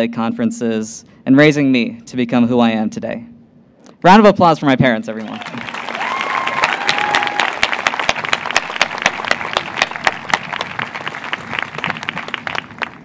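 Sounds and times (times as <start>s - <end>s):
crowd applauding: 5.2s - 13.0s
close sharp hand claps: 5.3s - 13.0s.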